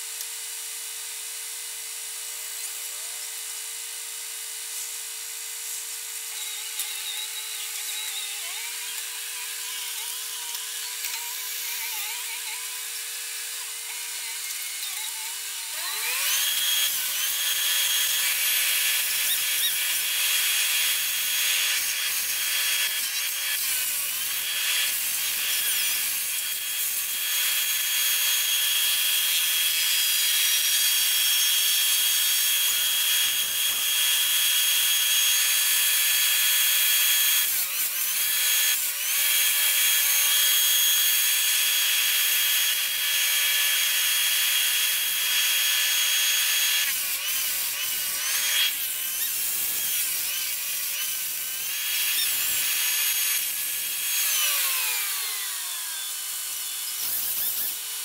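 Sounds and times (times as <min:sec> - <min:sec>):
power equipment whining: 0:06.1 - 0:28.0.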